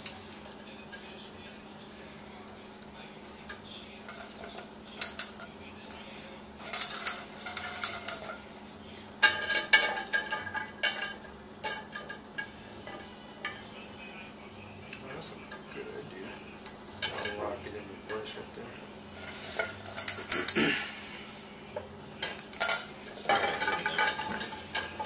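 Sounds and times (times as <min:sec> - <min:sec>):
metal bowl clinking: 0:03.5 - 0:05.6, 0:06.6 - 0:13.8, 0:16.6 - 0:18.3, 0:19.1 - 0:20.6, 0:22.2 - 0:25.0
metal rack clattering: 0:22.2 - 0:25.0.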